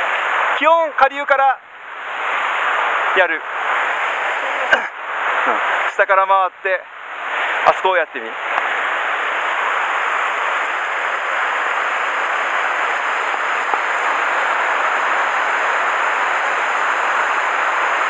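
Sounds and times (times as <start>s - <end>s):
stream rushing over rocks: 8.4s - 18.0s.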